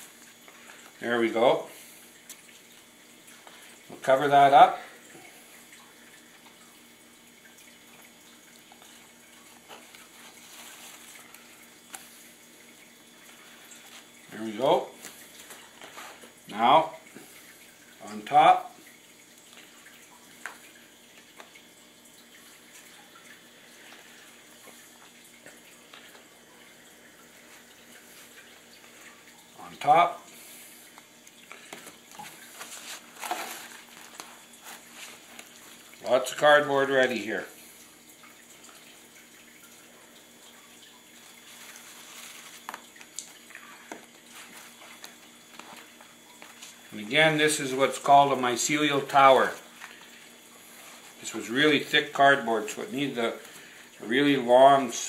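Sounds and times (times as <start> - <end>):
wet cardboard rustling: 8.7 - 12.3, 13.3 - 16.4, 30.9 - 36.1, 41.1 - 46.9.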